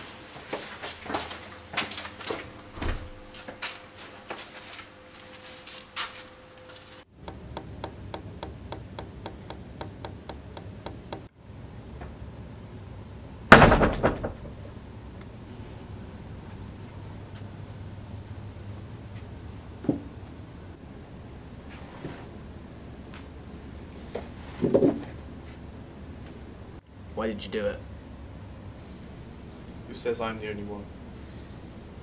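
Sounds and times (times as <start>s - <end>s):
door slamming shut: 2.8s - 3.2s, 13.5s - 14.6s
even ticking: 7.2s - 11.3s.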